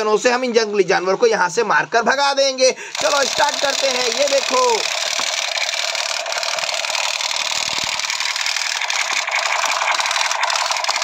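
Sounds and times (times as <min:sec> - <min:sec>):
toy gun rattling and buzzing: 0:02.9 - 0:11.0.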